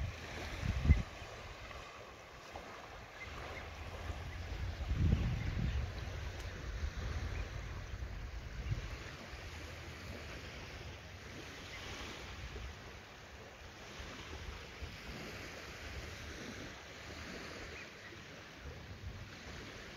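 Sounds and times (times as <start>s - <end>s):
wind buffeting microphone: 0.0s - 13.0s
small waves lapping over pebbles: 0.0s - 19.9s.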